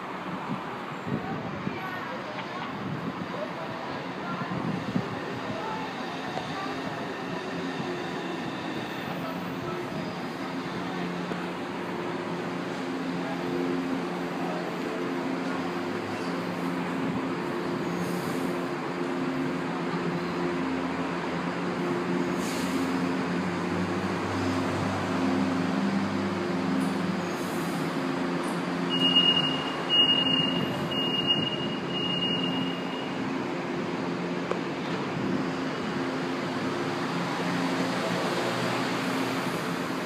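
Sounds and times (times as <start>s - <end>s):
high-pitched door warning beeps: 28.9s - 33.2s.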